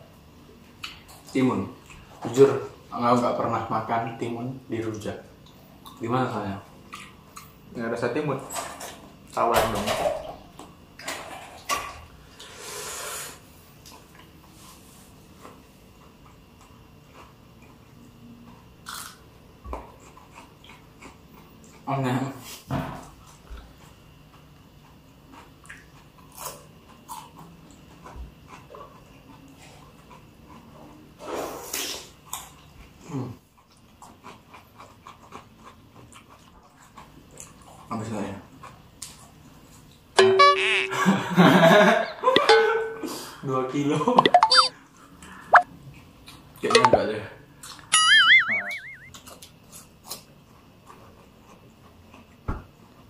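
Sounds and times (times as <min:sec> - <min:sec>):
breathy sniff: 0:12.4 - 0:13.4
eating crunches and clicks: 0:16.0 - 0:22.0, 0:23.3 - 0:31.0, 0:32.2 - 0:37.9, 0:49.1 - 0:53.0.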